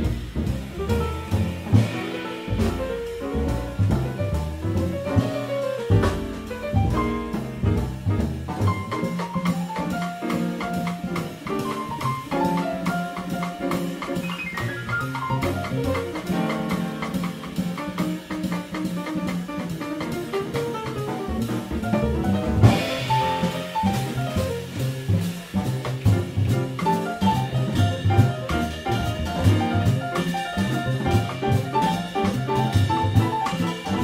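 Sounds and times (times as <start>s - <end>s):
jazz piano: 0.0s - 34.0s
walking upright bass: 0.0s - 34.0s
loud cymbal crash: 22.6s - 25.5s.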